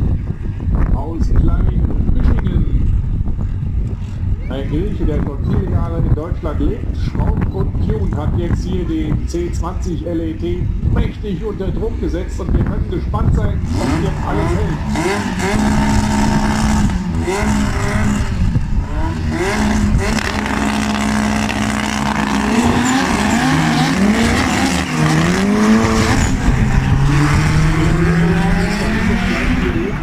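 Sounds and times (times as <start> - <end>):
drag car engines revving: 6.9 - 30.0.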